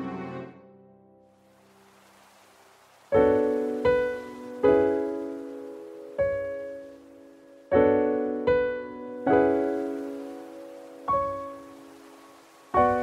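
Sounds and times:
slow solo piano: 3.1 - 13.0.

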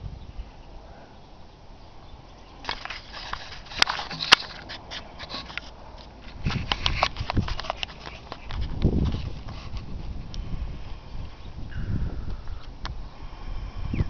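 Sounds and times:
footsteps on dry grass and dirt: 2.7 - 10.2.

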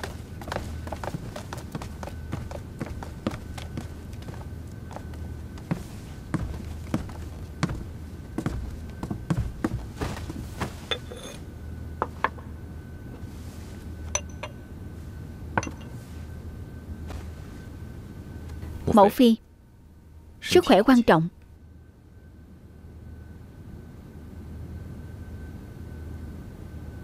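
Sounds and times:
steady low hum: 0.0 - 27.0
porcelain bowl and tableware clinking: 10.9 - 11.4, 14.2 - 14.6.

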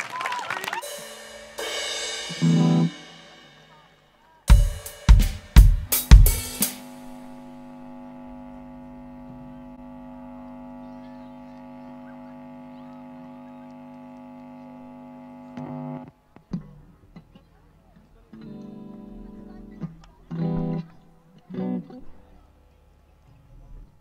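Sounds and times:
electrical hum from sound system: 0.0 - 24.0
drum and cymbal hits: 0.8 - 8.2.

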